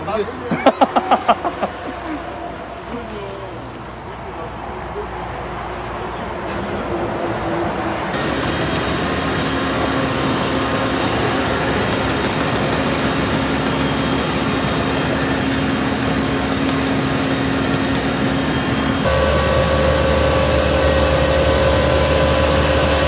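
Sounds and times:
diesel engine running steadily: 8.0s - 23.0s.

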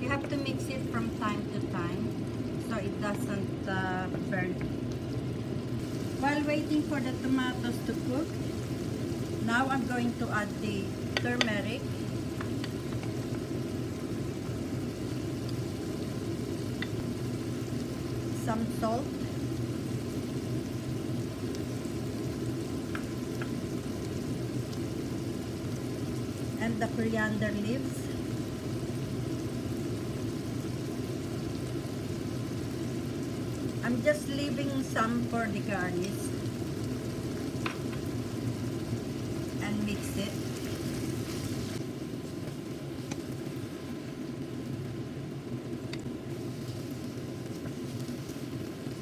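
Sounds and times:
sauce simmering in a pan: 0.0s - 49.0s
spatula tap: 37.6s - 38.0s.

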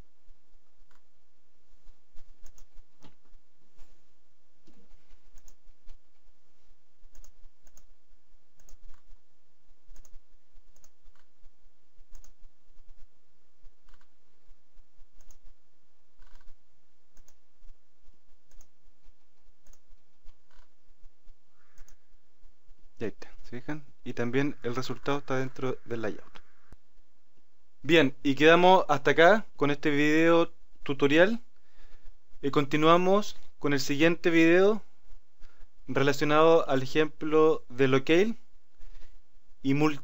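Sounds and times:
keyboard typing: 2.4s - 3.2s, 7.1s - 7.9s, 8.6s - 9.1s, 9.9s - 11.3s, 12.1s - 12.4s, 15.2s - 15.5s, 18.5s - 18.8s, 21.7s - 22.0s
mouse clicks: 2.4s - 3.2s, 4.6s - 5.6s, 7.1s - 7.9s, 8.6s - 9.1s, 9.9s - 11.3s, 12.1s - 12.4s, 15.2s - 15.4s, 17.2s - 17.4s, 18.5s - 18.7s, 19.6s - 19.8s, 21.6s - 22.0s.

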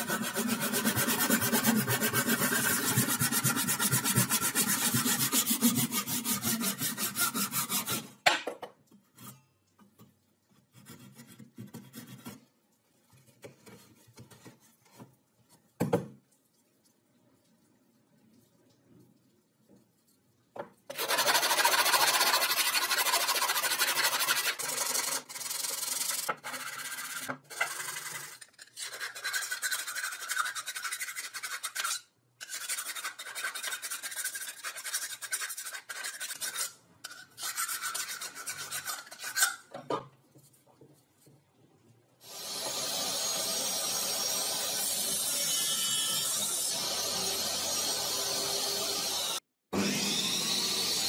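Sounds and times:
hand file rasping: 0.0s - 8.2s, 20.9s - 39.6s
table saw running: 46.2s - 51.0s.

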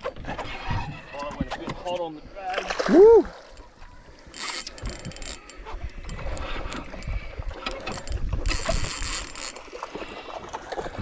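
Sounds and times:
reel drag ratcheting: 3.4s - 10.9s
fishing reel gears winding: 4.2s - 9.7s.

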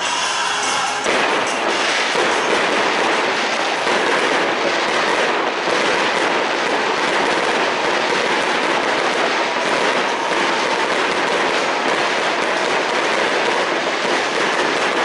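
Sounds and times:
fireworks crackling and popping: 0.0s - 15.0s.

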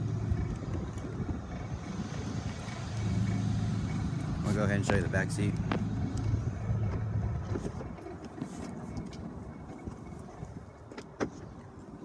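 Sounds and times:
handling rustle: 4.7s - 12.0s.

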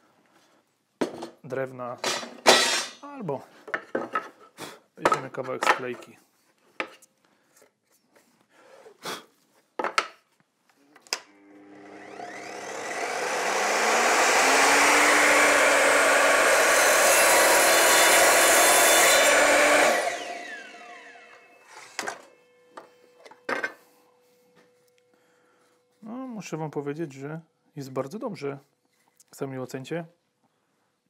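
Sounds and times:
mitre saw cutting plywood: 11.6s - 21.5s.

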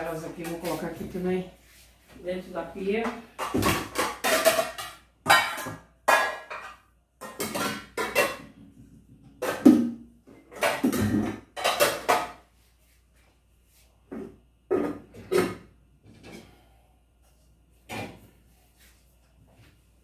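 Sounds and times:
metal pans clattering: 3.0s - 8.7s, 9.4s - 12.4s.

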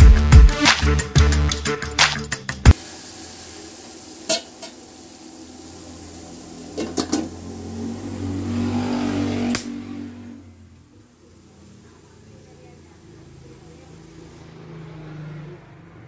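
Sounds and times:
music: 0.0s - 2.8s
gas burner rushing: 2.7s - 14.6s
metal pot lid clinking: 4.3s - 4.8s.

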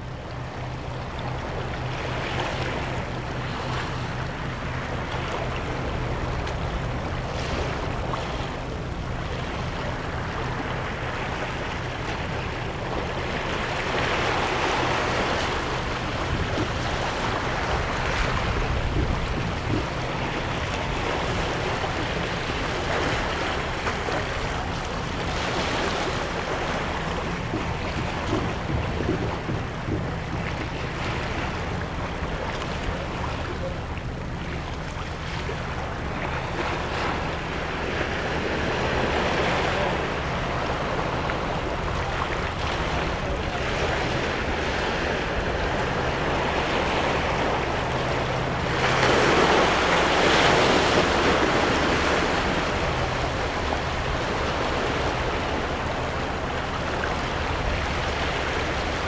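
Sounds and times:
small waves lapping over rocks: 12.8s - 59.0s.

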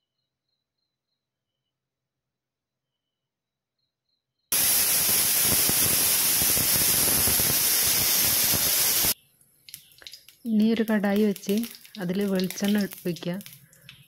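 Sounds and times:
pressure cooker valve hissing: 4.5s - 9.2s.

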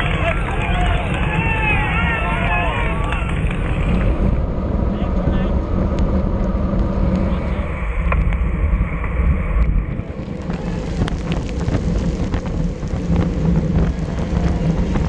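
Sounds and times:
wind rumbling on microphone: 0.0s - 15.0s
tyres hissing on wet road: 8.8s - 15.0s.

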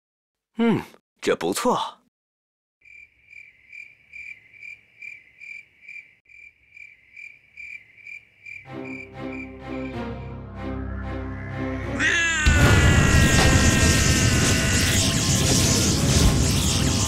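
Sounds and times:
crickets chirping: 2.8s - 10.0s.

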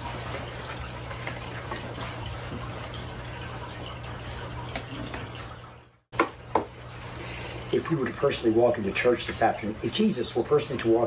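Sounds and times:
paper rustling: 0.0s - 3.1s.

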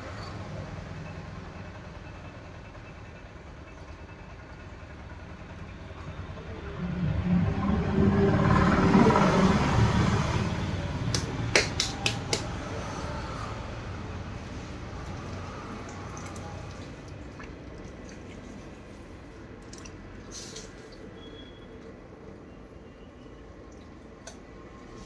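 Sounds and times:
louder low sound: 6.3s - 11.5s.

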